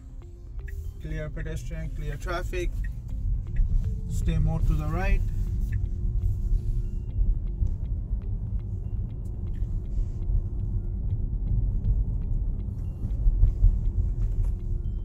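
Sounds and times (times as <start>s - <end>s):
road and tyre noise in car cabin: 0.0s - 15.0s.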